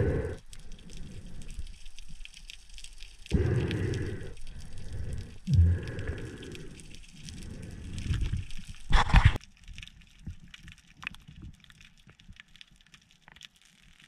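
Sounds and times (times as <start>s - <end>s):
underwater rumble: 0.0s - 9.4s
crackling clicks underwater: 0.0s - 14.0s.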